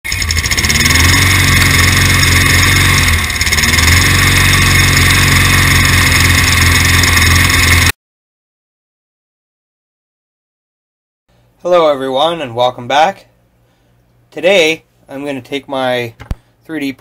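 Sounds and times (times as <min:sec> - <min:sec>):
lawnmower engine running: 0:00.0 - 0:07.9.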